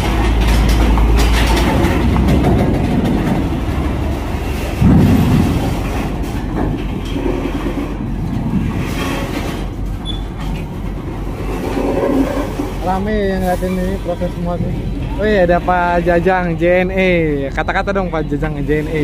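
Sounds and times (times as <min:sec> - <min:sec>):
clattering rumble over steel ramp: 0:00.0 - 0:19.0
loud low thud: 0:04.7 - 0:06.8.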